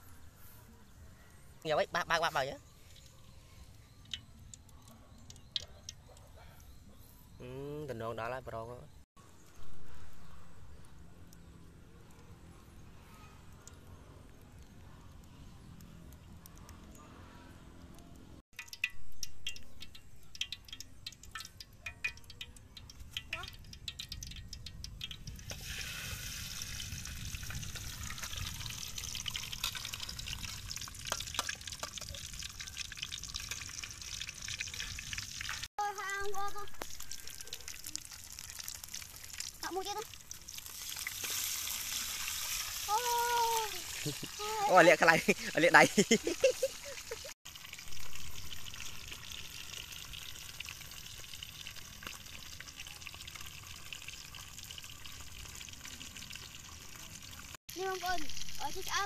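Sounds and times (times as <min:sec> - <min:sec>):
fish sizzling in hot oil: 0:18.6 - 0:59.0
oil popping: 0:18.6 - 0:59.0.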